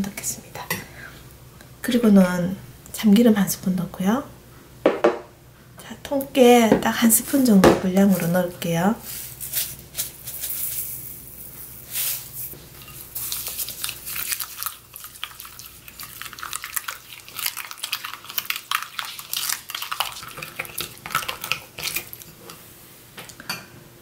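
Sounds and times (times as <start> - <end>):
spoon scraping glass bowl: 9.0 - 14.6.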